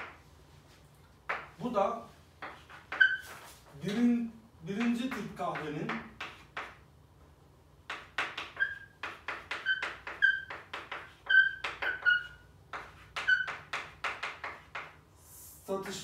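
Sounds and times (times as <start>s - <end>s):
chalk scratching on chalkboard: 2.4s - 3.8s, 5.9s - 6.8s, 7.9s - 16.0s
chalk squeaking: 2.4s - 3.8s, 7.9s - 15.0s.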